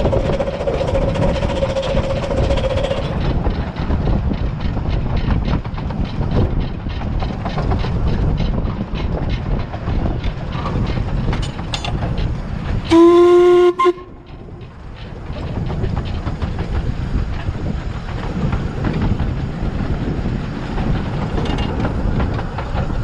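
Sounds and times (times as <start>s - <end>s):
steam locomotive running: 0.0s - 23.0s
steam whistle blast: 12.9s - 14.2s.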